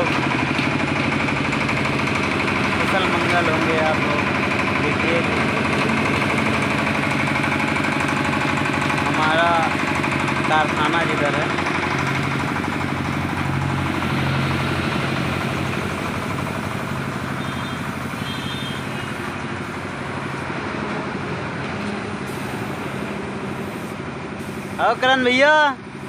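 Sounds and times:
air compressor humming: 0.0s - 26.0s
spray gun hissing: 5.4s - 9.9s, 11.4s - 20.5s, 22.2s - 26.0s.

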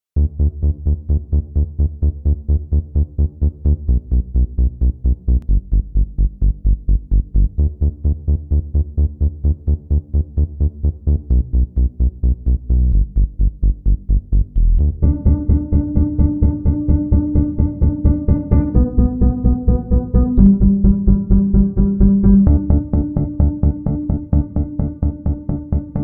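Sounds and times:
electronic music with pulsing beat: 14.7s - 26.0s.

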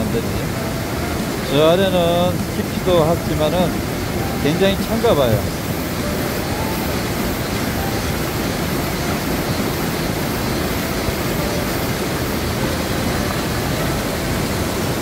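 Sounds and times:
small waterfall rushing: 0.0s - 15.0s.

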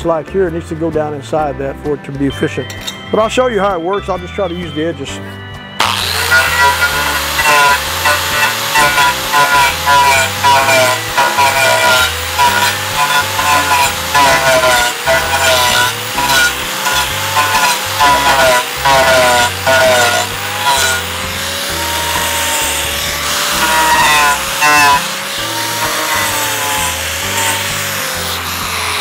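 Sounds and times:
angle grinder cutting wood: 5.8s - 29.0s.

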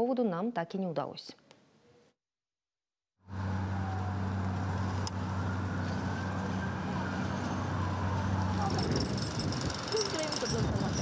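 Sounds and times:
cars passing: 3.2s - 11.0s.

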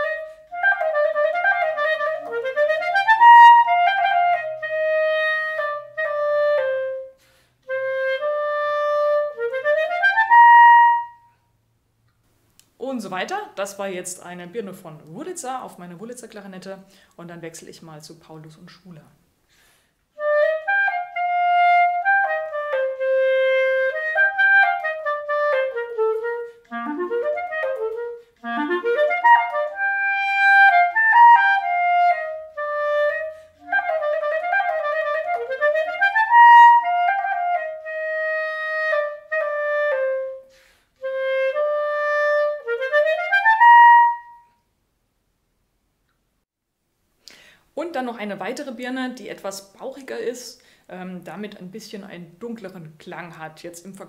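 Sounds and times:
solo clarinet melody: 0.0s - 11.5s, 20.1s - 44.7s.

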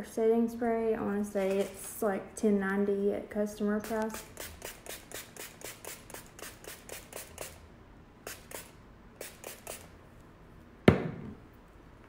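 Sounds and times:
spray bottle hissing puffs: 8.3s - 9.9s.

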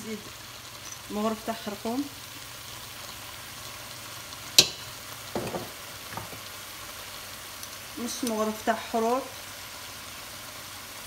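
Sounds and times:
meat sizzling in a pot: 0.0s - 11.0s
soft knocks: 5.3s - 6.4s.

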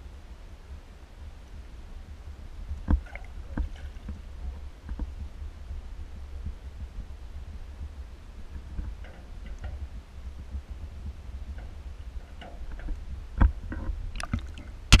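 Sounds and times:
muffled underwater rumble: 0.6s - 15.0s
faint clicks and ticks: 8.5s - 15.0s.

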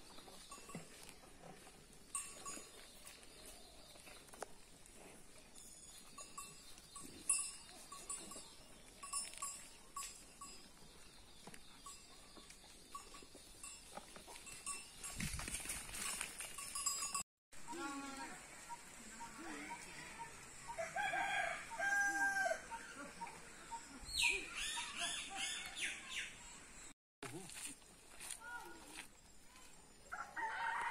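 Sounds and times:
cattle bells clinking: 0.0s - 17.2s.

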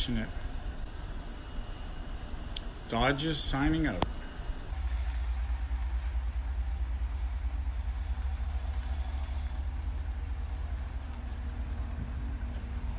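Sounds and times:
van engine idling: 4.7s - 12.9s.

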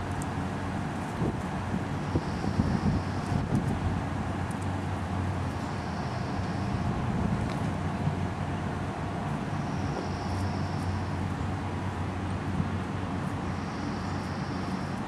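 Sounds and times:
low hum and rumble: 0.0s - 15.0s.

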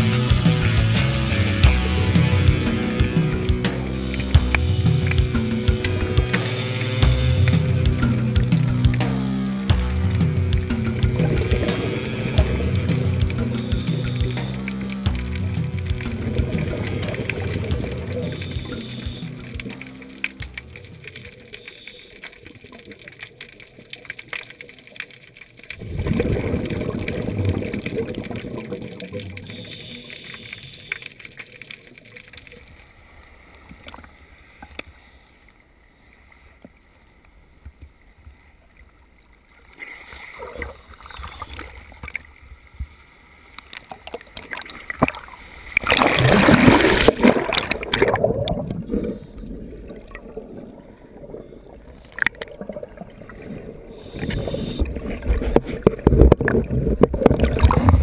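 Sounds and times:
water sloshing and gurgling: 0.4s - 58.0s
breaking whitewater rushing: 45.8s - 48.7s.

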